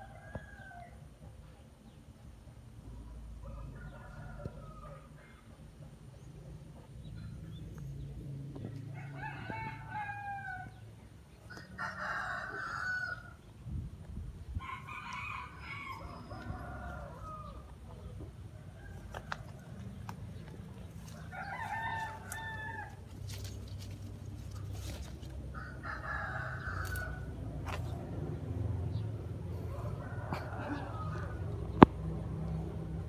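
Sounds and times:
rooster crowing: 0:08.9 - 0:10.8, 0:11.5 - 0:13.4, 0:14.6 - 0:17.7, 0:21.1 - 0:23.1, 0:25.5 - 0:27.3, 0:29.7 - 0:31.8.

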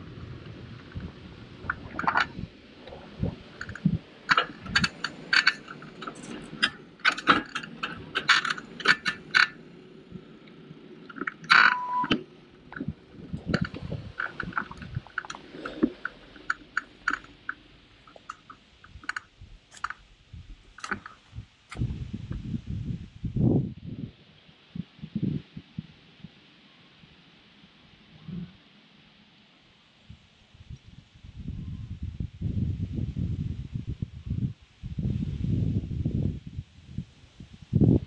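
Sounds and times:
road and wind noise: 0:00.0 - 0:38.0
bicycle rattling and clicking: 0:03.6 - 0:10.0, 0:11.1 - 0:20.0, 0:20.6 - 0:21.8.

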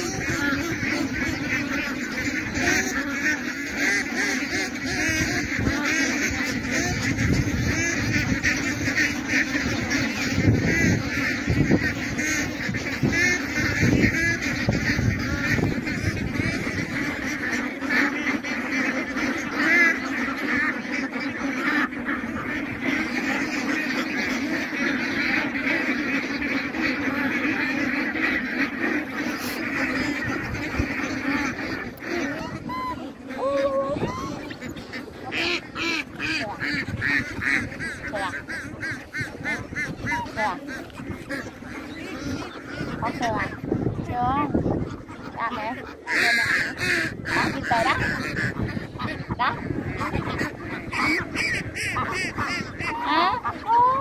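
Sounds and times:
wind rumble on microphone: 0:00.0 - 0:03.2, 0:04.2 - 0:17.7, 0:28.8 - 0:54.0
ducks quacking: 0:00.0 - 0:54.0.

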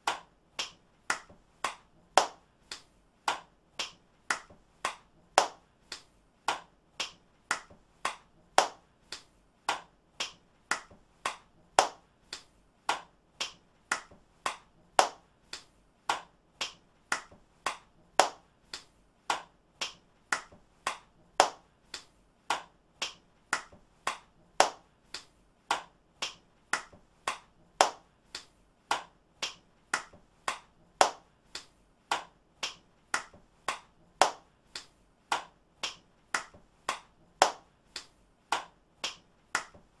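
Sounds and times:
hand claps: 0:00.0 - 0:40.0.

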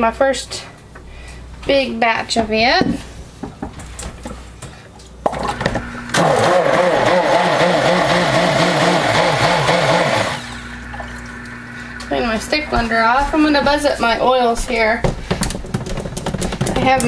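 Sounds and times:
stick blender motor humming: 0:05.2 - 0:17.0.

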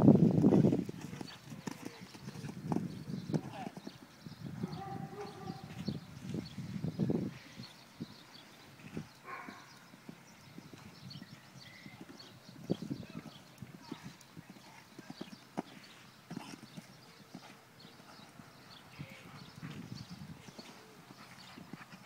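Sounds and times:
horse hoofbeats on sand: 0:08.8 - 0:18.4, 0:19.0 - 0:22.0.

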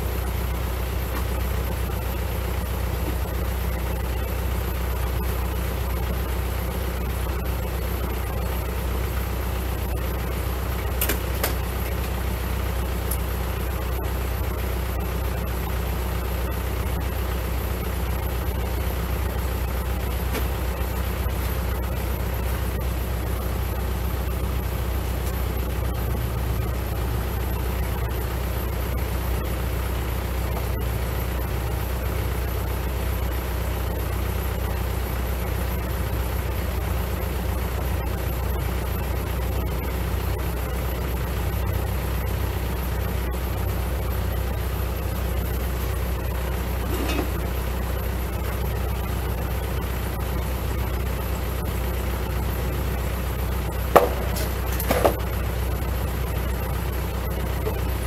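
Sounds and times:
diesel tractor engine idling: 0:00.0 - 0:58.0
brief knock: 0:54.0 - 0:55.2.

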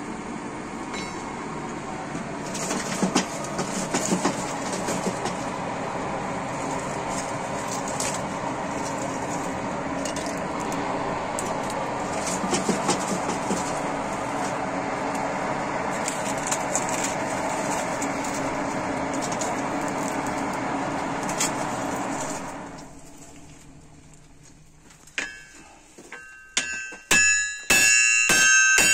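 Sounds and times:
coals crackling and popping: 0:02.5 - 0:25.2.

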